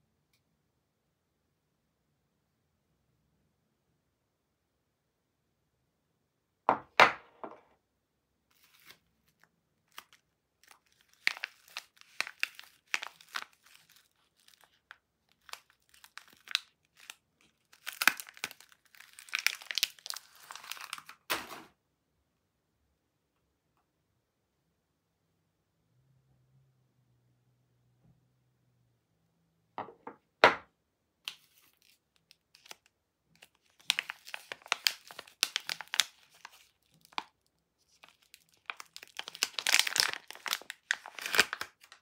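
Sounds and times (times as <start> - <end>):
paper wrapper crinkling and tearing: 8.5 - 21.5, 31.3 - 42.0.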